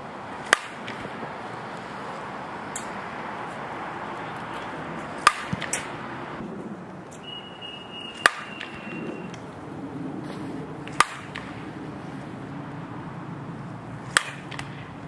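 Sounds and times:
bat hitting softball: 0.4 - 3.2, 4.4 - 6.1, 7.1 - 9.6, 10.3 - 11.8, 14.0 - 15.0.

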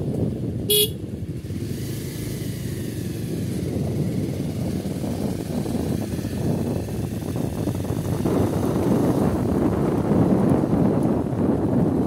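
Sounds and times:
vehicle engine and tyre rumble: 0.0 - 12.0
car horn beep: 0.7 - 1.0.

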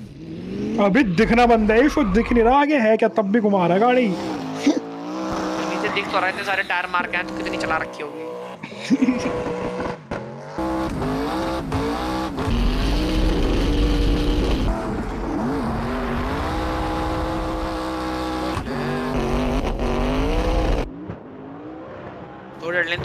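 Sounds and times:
race car engine revving: 0.0 - 2.6, 3.7 - 23.0.

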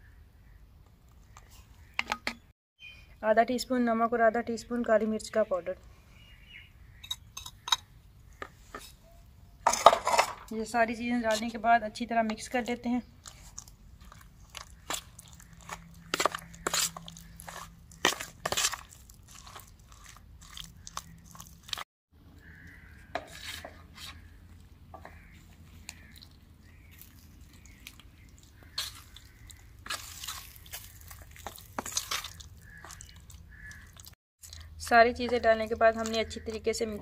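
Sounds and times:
spoon squelching in marinade: 12.4 - 21.8, 22.6 - 36.8
spoon scraping plastic tub: 14.8 - 20.2.

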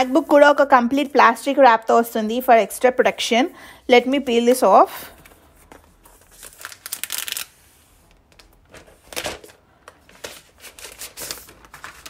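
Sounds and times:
plastic wrap crinkling: 5.6 - 12.0.

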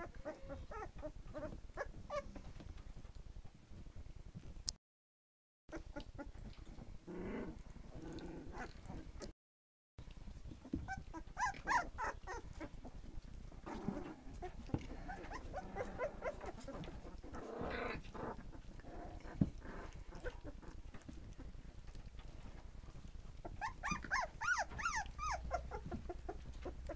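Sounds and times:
puppies whimpering and squealing: 0.0 - 2.5, 5.7 - 6.5, 10.6 - 13.0, 13.6 - 21.4, 23.4 - 26.9.

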